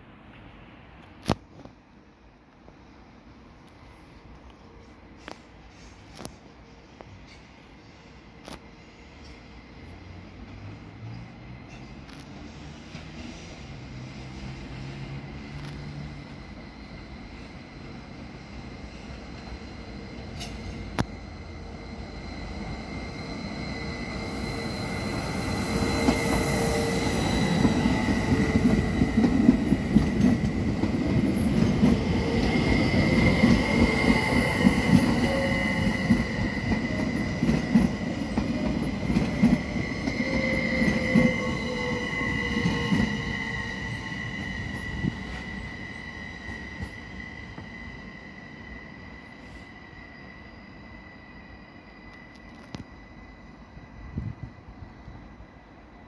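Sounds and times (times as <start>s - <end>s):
high squeal: 16.1s - 30.5s, 31.2s - 54.1s.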